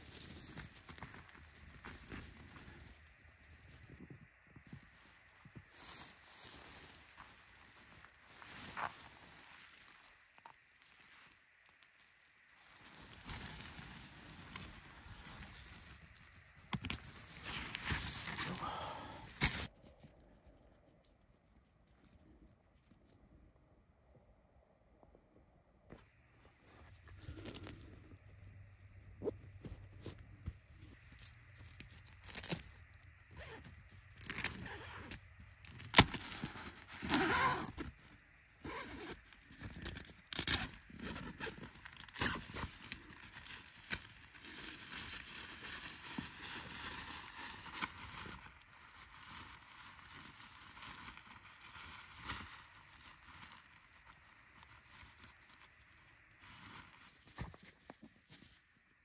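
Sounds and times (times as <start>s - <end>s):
tent fabric rustling: 4.9s - 19.7s, 29.2s - 58.8s
clicks and scrapes of tent stake: 16.7s - 18.6s.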